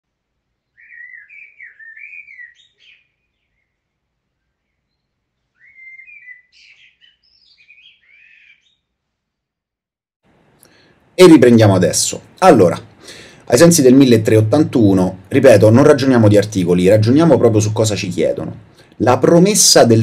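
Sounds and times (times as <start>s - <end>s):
bird singing: 0.6s - 8.9s.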